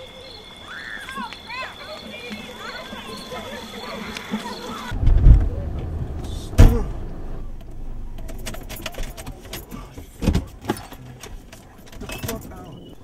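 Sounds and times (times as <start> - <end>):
heavy low thump: 4.9 - 7.6
steady low rumble: 4.9 - 8.5
small clicks and rattles: 7.5 - 12.6
keys jangling: 8.1 - 12.6.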